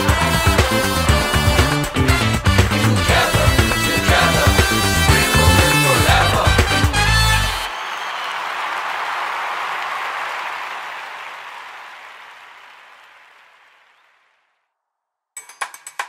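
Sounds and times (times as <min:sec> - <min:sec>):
applause: 0:00.0 - 0:14.6
music with percussive knocks: 0:15.4 - 0:16.0.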